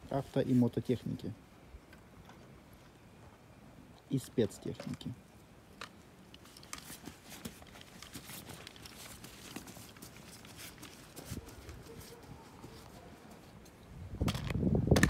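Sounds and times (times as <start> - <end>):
child's footsteps on soil and grass: 6.4 - 13.8.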